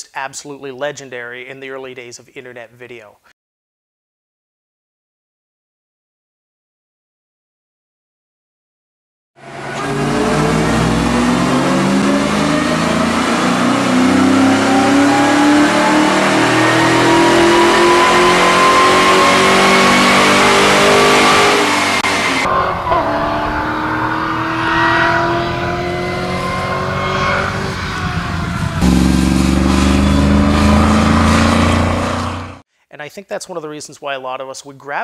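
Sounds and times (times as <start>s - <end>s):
car accelerating: 9.4s - 32.6s
car engine revving: 9.4s - 32.6s
supercharger whine: 9.4s - 32.6s.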